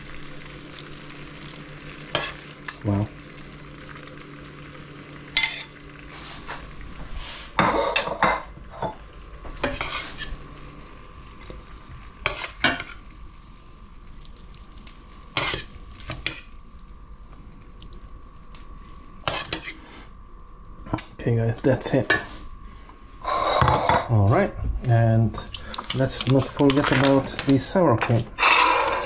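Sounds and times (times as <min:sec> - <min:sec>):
steady background hum: 0:00.0 - 0:29.0
utensil scraping a pan: 0:09.6 - 0:10.4, 0:12.2 - 0:13.0, 0:19.2 - 0:19.8, 0:23.2 - 0:24.1.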